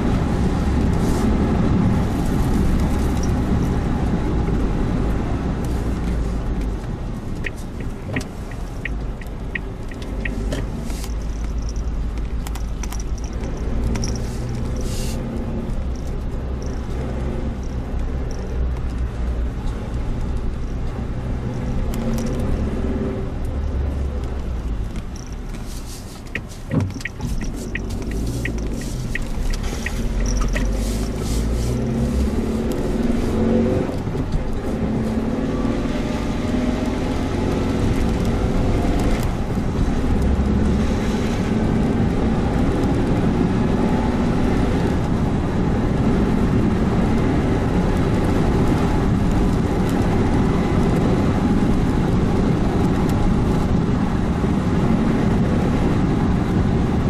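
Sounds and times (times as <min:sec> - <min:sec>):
car engine and road rumble: 0:00.0 - 0:57.0
brisk evenly spaced ticks: 0:07.4 - 0:11.9, 0:25.0 - 0:32.8.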